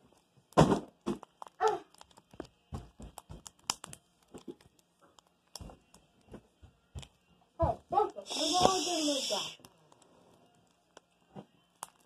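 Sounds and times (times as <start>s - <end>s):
slime squelching and popping: 1.0s - 6.0s.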